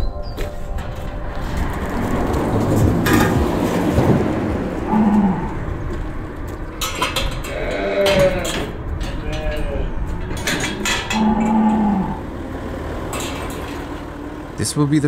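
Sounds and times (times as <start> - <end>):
metal gate clanking: 0.7 - 14.7
cattle mooing: 2.7 - 12.8.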